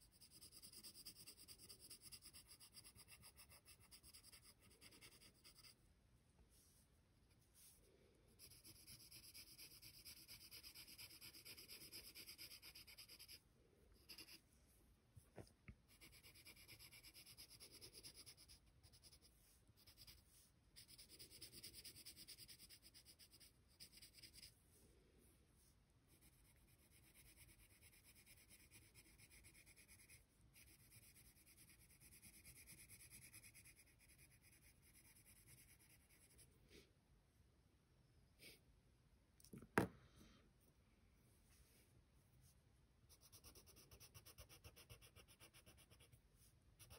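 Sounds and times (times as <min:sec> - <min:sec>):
pencil shading on paper: 0:00.0 - 0:05.9, 0:07.4 - 0:14.4, 0:15.8 - 0:24.6, 0:26.1 - 0:36.5, 0:43.0 - 0:46.9.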